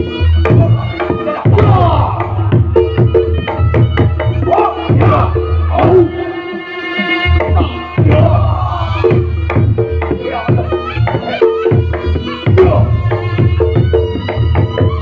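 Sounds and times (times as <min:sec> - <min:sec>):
trumpet melody: 0:00.0 - 0:09.4
drums beating steady rhythm: 0:00.0 - 0:15.0.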